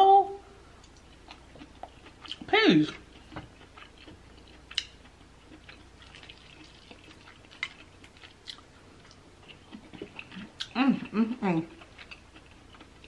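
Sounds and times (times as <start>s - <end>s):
wet clicks and smacks of eating: 0.8s - 2.5s, 3.2s - 10.8s.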